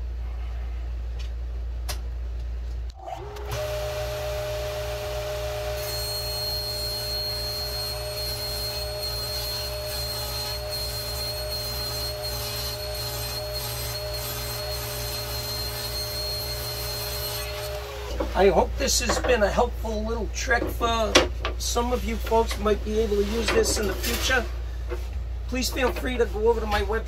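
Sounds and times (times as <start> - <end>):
table saw motor running: 3.1 - 18.2
saw blade ripping wood: 5.8 - 17.8.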